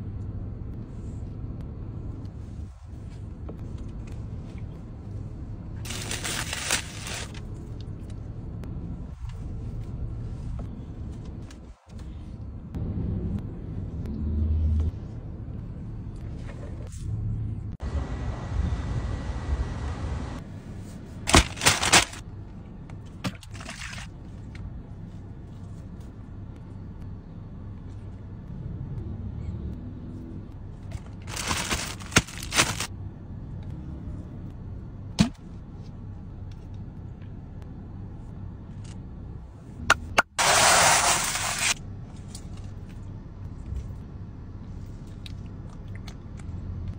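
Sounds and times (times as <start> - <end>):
low steady hum: 0.0 - 46.9
paper wrapper crinkling: 5.9 - 7.4, 21.3 - 22.2, 31.2 - 32.9.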